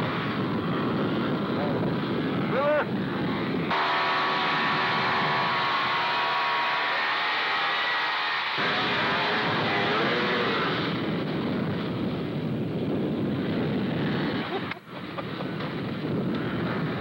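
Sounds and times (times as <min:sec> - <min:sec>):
snowmobile engine passing by: 0:03.4 - 0:11.2.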